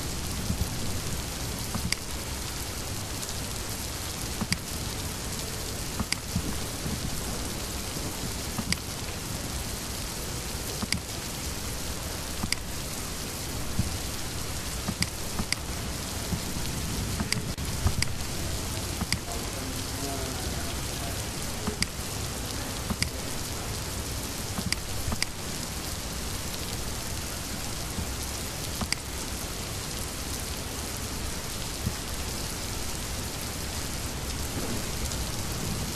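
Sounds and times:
background hiss: 0.0s - 35.9s
computer mouse clicks: 4.4s - 4.7s, 28.8s - 29.1s.

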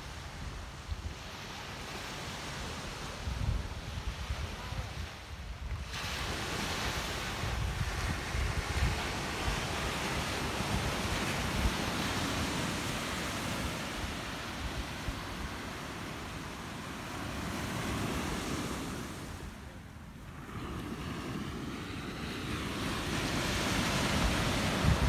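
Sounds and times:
wind on microphone: 2.6s - 16.6s, 20.3s - 25.0s
surf breaking on beach: 20.3s - 25.0s.

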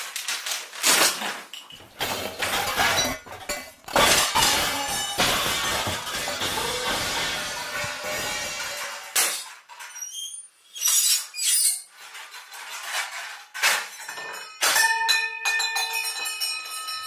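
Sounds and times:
steel dishes clattering: 1.6s - 9.6s.

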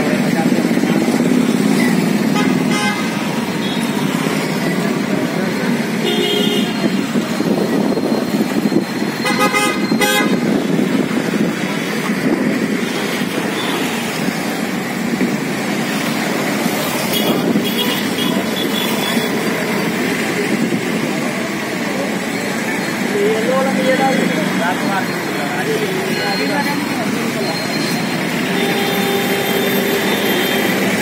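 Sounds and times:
road traffic noise: 0.0s - 31.0s
vehicle horn toots: 2.4s - 4.0s, 6.0s - 7.0s, 9.2s - 10.4s, 28.4s - 30.9s.

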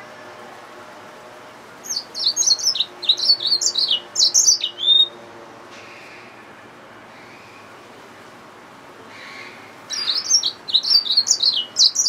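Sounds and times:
finch singing: 1.8s - 5.2s, 9.2s - 12.0s.

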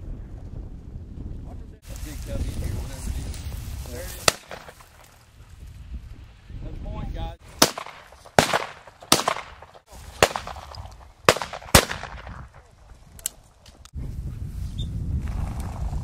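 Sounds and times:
shotgun shots with echo: 4.2s - 5.0s, 7.6s - 12.6s.

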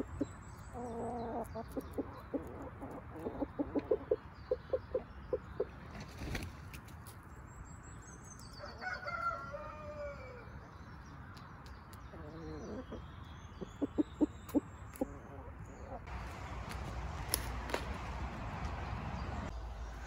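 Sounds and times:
hen clucking: 0.0s - 5.8s, 13.6s - 16.1s
rooster crowing: 8.6s - 10.5s.

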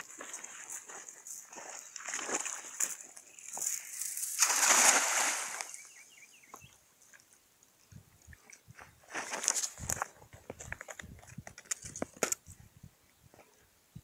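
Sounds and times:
cast net splashing into water: 4.1s - 5.8s.

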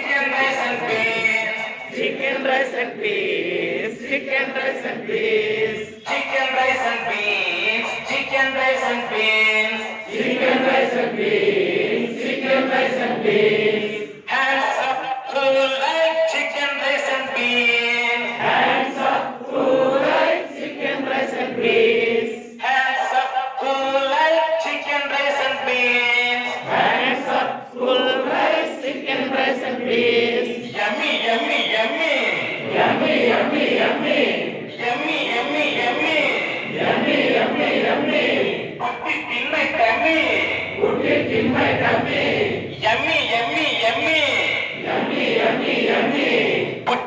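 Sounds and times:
group of adults singing: 0.0s - 8.4s, 10.0s - 14.3s, 18.2s - 22.8s, 26.5s - 31.5s, 32.3s - 34.8s, 35.8s - 38.8s, 40.5s - 42.9s, 44.7s - 46.9s.

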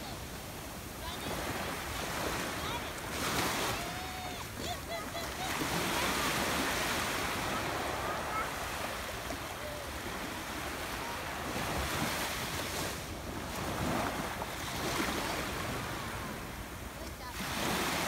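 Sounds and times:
small waves lapping on sand: 0.0s - 18.0s.

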